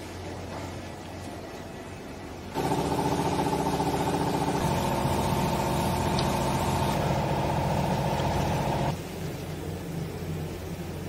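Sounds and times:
hydraulic press motor and pump running: 2.6 - 9.0.

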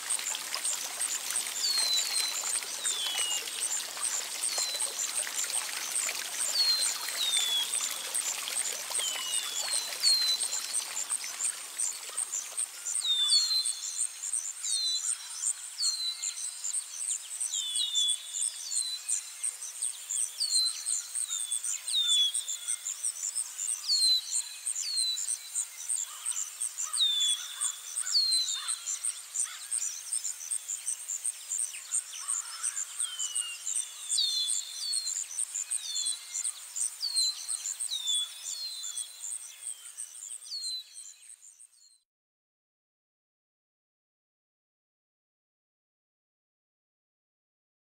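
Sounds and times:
birds chirping: 0.0 - 13.6
trickle of running water: 0.0 - 41.4
insect trill: 0.1 - 14.5.

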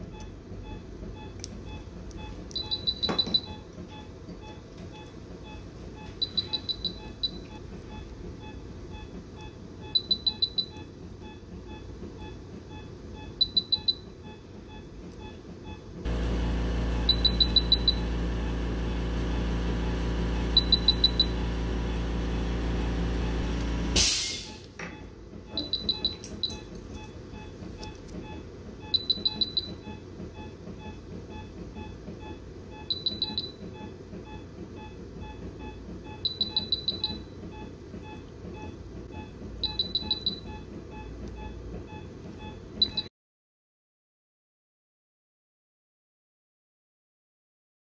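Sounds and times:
machine motor humming: 16.0 - 24.2
high electronic beeps: 17.0 - 18.2, 20.4 - 22.2
short loud hiss: 24.0 - 24.6.

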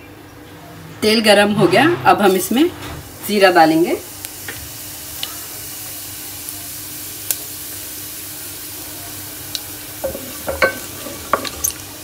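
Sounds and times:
seeds frying in hot oil: 3.1 - 12.0.

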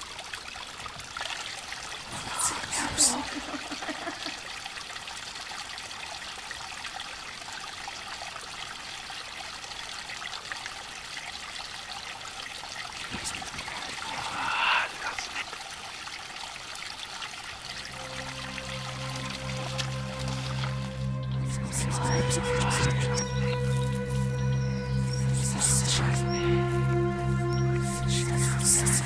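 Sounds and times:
stream trickling: 0.0 - 29.0.

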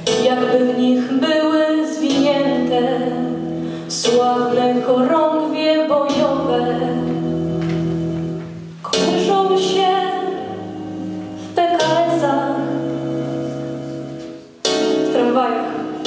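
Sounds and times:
woman singing into a microphone: 0.0 - 7.2, 8.8 - 10.7, 11.4 - 12.8, 15.0 - 16.0.

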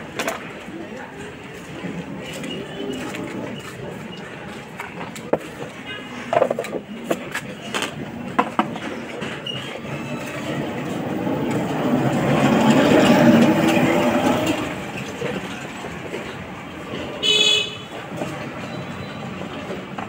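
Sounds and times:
motor vehicle passing: 9.9 - 15.3.

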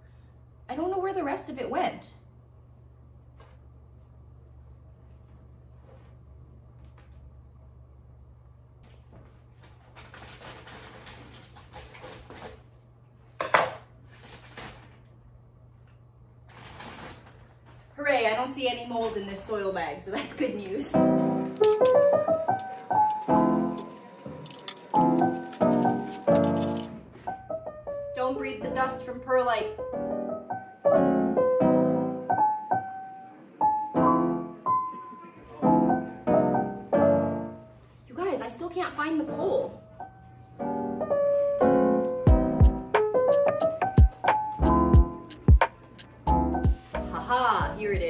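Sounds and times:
bag crinkling and rustling: 9.5 - 12.7, 14.0 - 15.0, 16.5 - 17.9, 21.4 - 27.0
piano chords and notes: 20.9 - 37.9, 39.2 - 48.0.

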